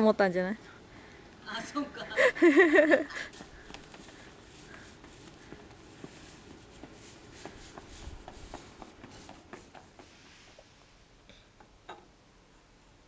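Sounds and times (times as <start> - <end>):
straw broom on ground: 2.8 - 10.8
toddler footsteps on asphalt: 3.2 - 10.4.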